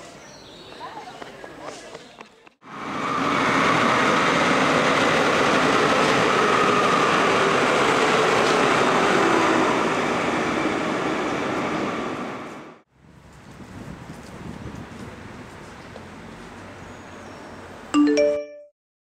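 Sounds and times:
faint train whine: 2.7s - 12.8s
train wheels rumbling on rail: 2.7s - 16.8s.

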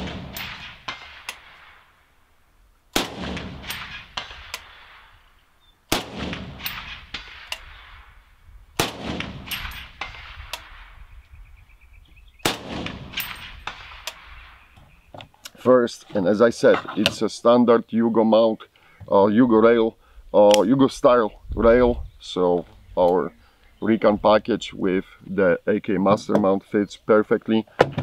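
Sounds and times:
suppressed rifle shots: 0.0s - 2.0s, 2.9s - 5.2s, 5.9s - 11.1s, 12.4s - 14.7s
rolling echo: 0.0s - 2.1s, 3.0s - 5.2s, 5.9s - 15.0s.

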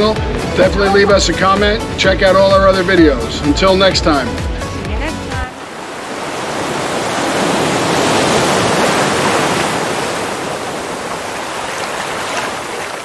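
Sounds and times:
ocean wave rushing: 4.4s - 13.0s.

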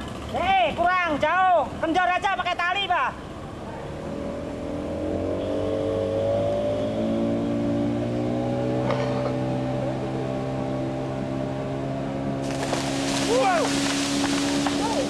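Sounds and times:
boat engine running: 8.6s - 15.0s.

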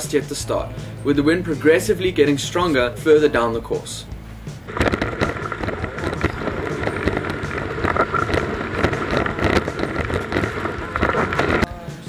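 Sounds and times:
water rushing and spraying: 4.7s - 11.6s
board knocking on waves: 4.7s - 11.9s.

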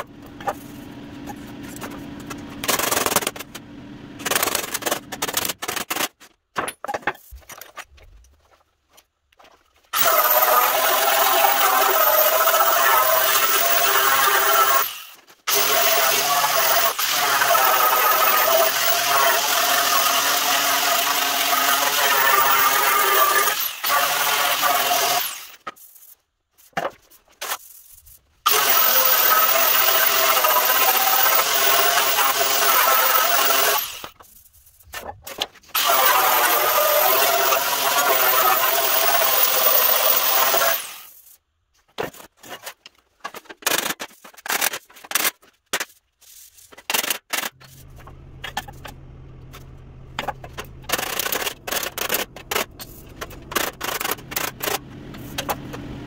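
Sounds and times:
angle grinder grinding steel: 10.0s - 25.4s, 35.8s - 41.0s
low steady hum: 47.6s - 56.0s.

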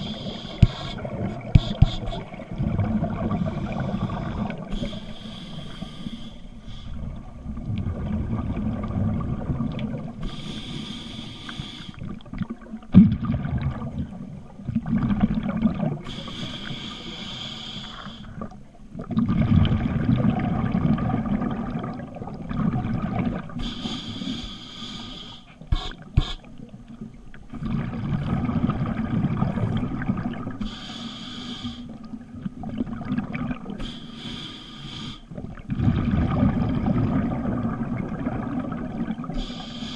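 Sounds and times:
regulator inhale hiss: 0.0s - 2.4s, 3.5s - 7.1s, 10.2s - 12.1s, 16.0s - 18.4s, 23.6s - 26.6s, 30.6s - 32.0s, 33.8s - 35.4s, 39.3s - 39.9s
exhaled bubbles rushing: 0.0s - 4.9s, 6.9s - 10.2s, 12.1s - 16.1s, 18.4s - 23.6s, 27.5s - 30.6s, 32.2s - 33.8s, 35.4s - 39.4s.

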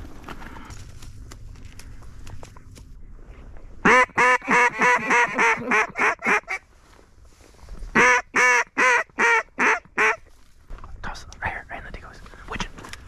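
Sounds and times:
duck call quacks: 3.8s - 6.6s, 8.0s - 10.2s.

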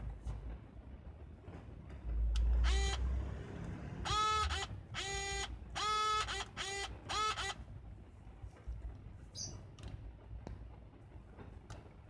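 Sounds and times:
low handling rumble: 0.0s - 4.1s
zoom lens motor whining: 2.6s - 3.1s, 4.1s - 7.6s.

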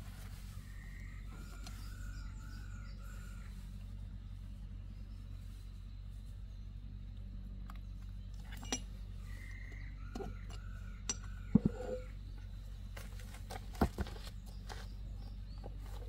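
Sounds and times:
steady low hum: 0.0s - 16.0s
metal tools clinking and knocking: 8.4s - 9.0s, 10.2s - 12.1s.

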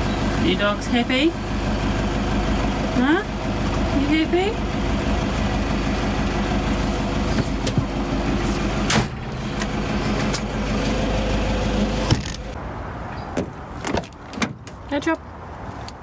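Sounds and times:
truck engine idling: 0.0s - 12.6s.

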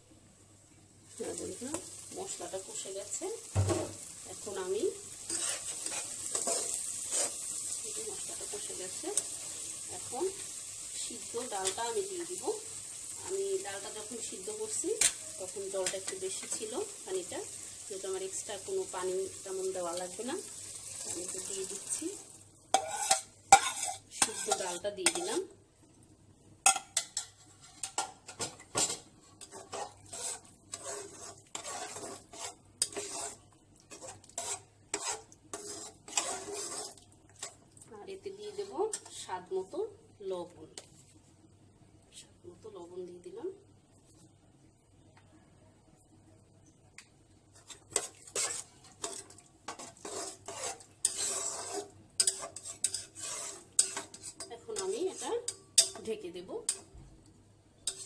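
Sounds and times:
spoon knocking and scraping a pot: 22.7s - 25.4s, 26.7s - 37.6s, 47.6s - 57.0s.

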